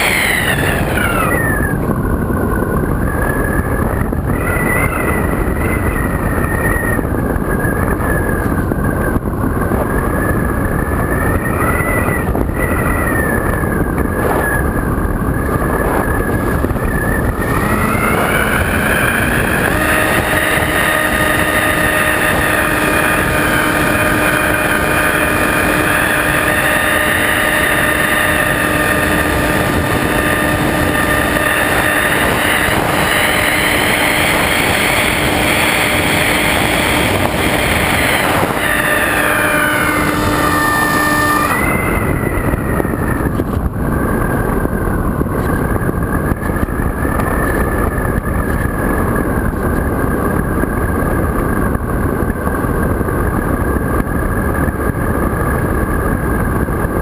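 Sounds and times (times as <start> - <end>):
air rushing: 0.0 - 8.8, 12.1 - 49.5
electric motor and propeller whining: 0.0 - 57.0.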